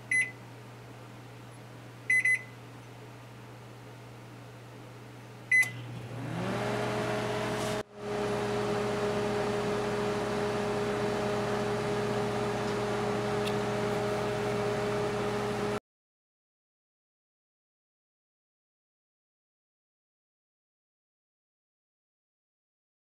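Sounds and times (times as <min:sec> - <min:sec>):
microwave beep: 0:00.0 - 0:00.4, 0:02.1 - 0:02.6, 0:05.5 - 0:05.9
microwave running hum: 0:00.0 - 0:15.8.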